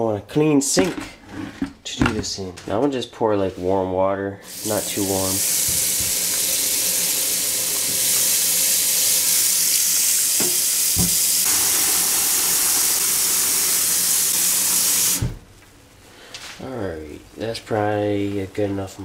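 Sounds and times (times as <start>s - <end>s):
faucet water splashing into bucket: 4.5s - 15.3s.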